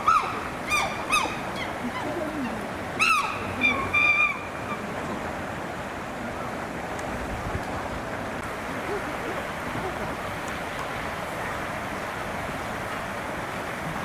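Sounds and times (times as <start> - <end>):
chimpanzees calling: 0.0 - 4.9
steady outdoor hiss: 0.0 - 14.0.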